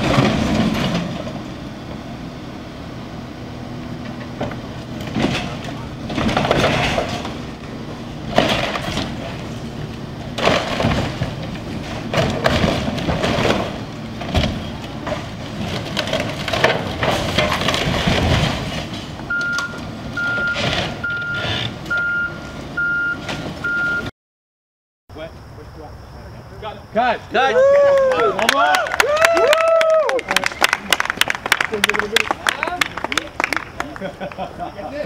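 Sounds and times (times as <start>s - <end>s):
metal and wood crashing: 0.0s - 1.5s, 4.4s - 7.6s, 8.2s - 9.5s, 10.2s - 19.6s
backhoe engine running: 0.0s - 24.0s
reversing alarm beeping: 19.3s - 24.1s.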